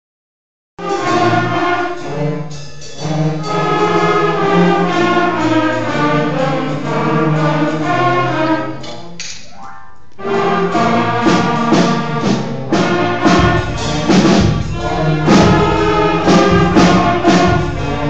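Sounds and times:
concert band playing chords: 10.2s - 18.0s.

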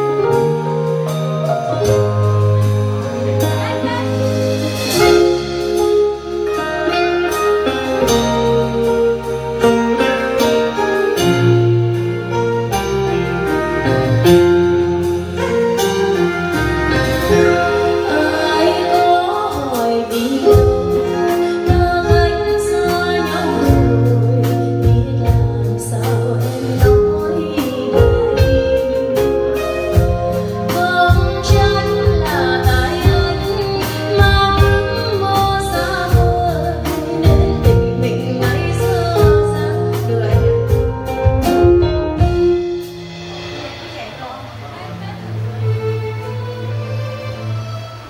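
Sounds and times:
bass: 0.0s - 48.0s
guitar: 0.0s - 48.0s
woman singing: 15.4s - 41.2s.

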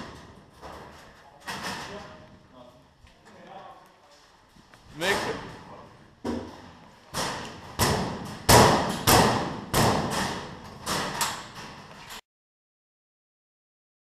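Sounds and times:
metal locker doors banging: 0.0s - 2.2s, 6.3s - 11.9s.

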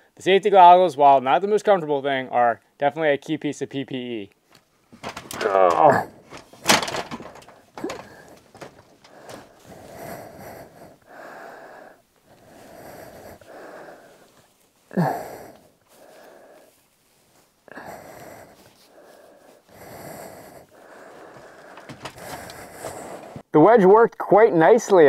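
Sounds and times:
heavy breathing through respirator: 6.0s - 23.5s.

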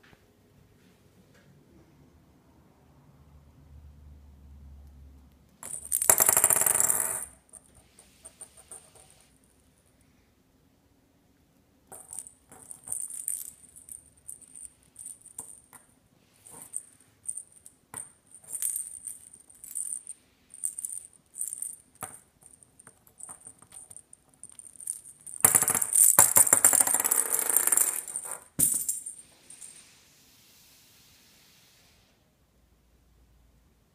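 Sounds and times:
plastic toy ball rattling: 5.6s - 7.3s, 11.9s - 15.8s, 16.5s - 29.1s.

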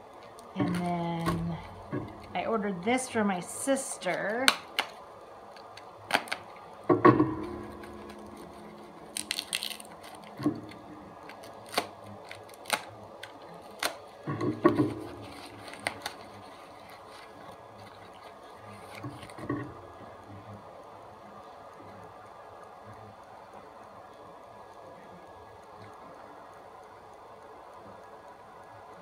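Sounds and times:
package handling clicks and taps: 0.3s - 2.3s, 4.2s - 19.7s
packaging crinkling rustle: 4.0s - 6.8s, 7.4s - 20.0s.

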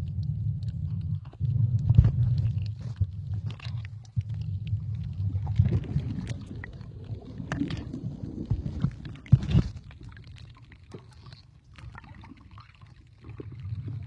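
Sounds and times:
underwater rumble of water: 0.0s - 14.0s.

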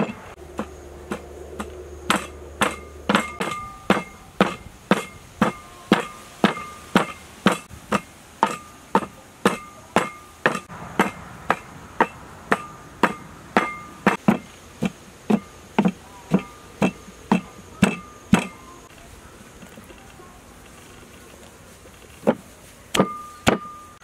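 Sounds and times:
pestle pounding wooden mortar: 0.0s - 18.7s, 22.2s - 24.0s.

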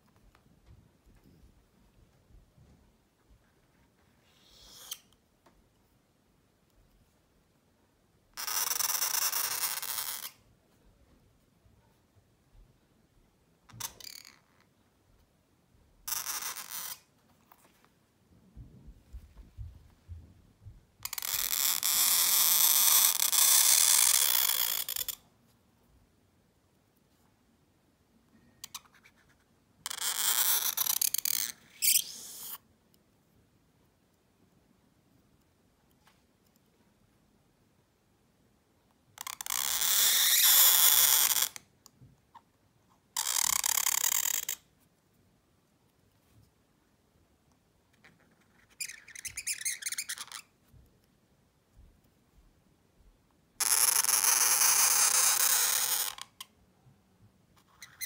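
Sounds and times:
pen nib scratching paper: 48.1s - 50.4s.

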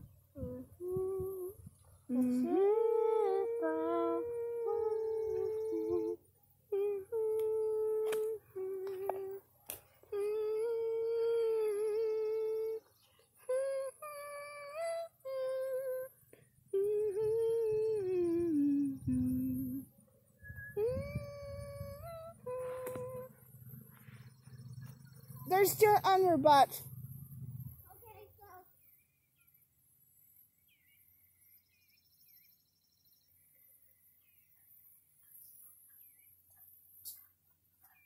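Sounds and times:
girl humming a slow tune: 0.0s - 19.9s, 20.5s - 23.4s.

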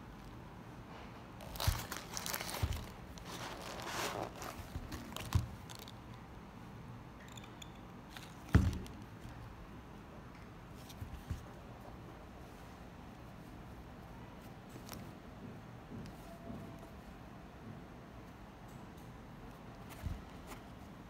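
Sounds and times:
fabric rustling and scraping: 1.3s - 6.0s.

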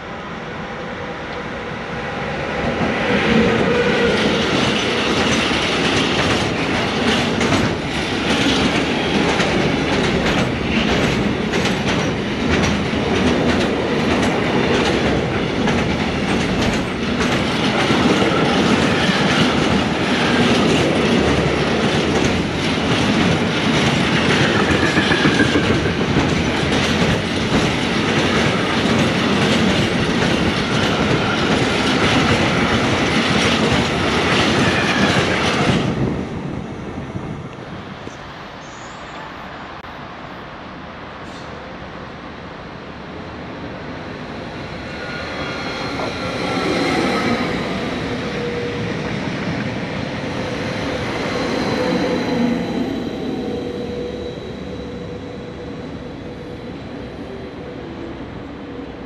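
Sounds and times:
freight train rumbling: 0.0s - 59.0s.

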